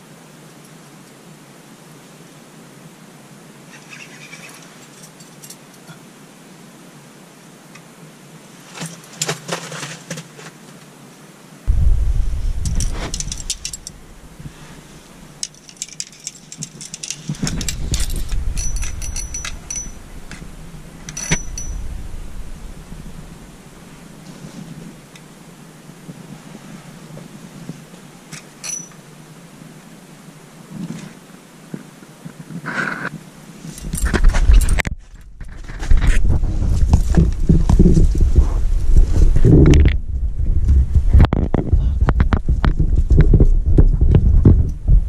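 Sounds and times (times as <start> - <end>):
low rumbling bumps: 11.7 - 15.5, 16.6 - 25.6, 34.0 - 45.0
camera handling clicks and rattles: 15.4 - 20.5.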